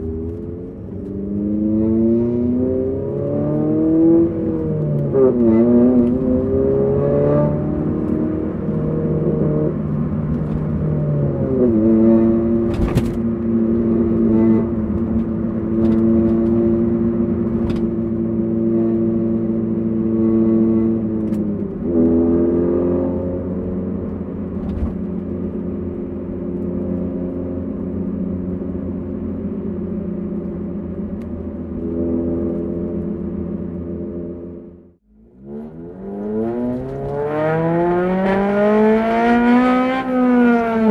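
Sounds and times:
car engine cruising: 0:00.0 - 0:40.9.

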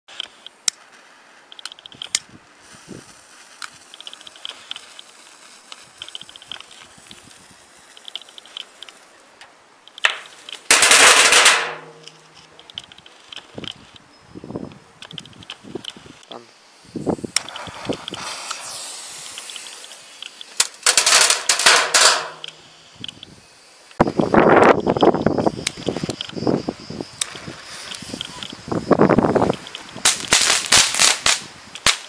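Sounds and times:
faint ticks and small crackles: 0:00.1 - 0:10.7, 0:12.0 - 0:14.1, 0:14.7 - 0:16.3, 0:19.2 - 0:26.5, 0:27.1 - 0:32.0
firecracker crackling burst: 0:00.8 - 0:09.4, 0:10.0 - 0:12.5, 0:16.8 - 0:23.0, 0:27.2 - 0:32.0
sharp crack: 0:03.0 - 0:13.8, 0:17.3 - 0:23.2, 0:29.4 - 0:32.0.

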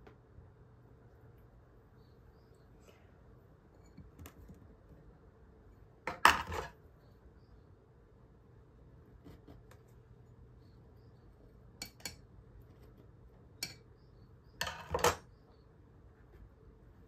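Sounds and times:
tweezers clattering on wooden table: 0:14.6 - 0:15.2.

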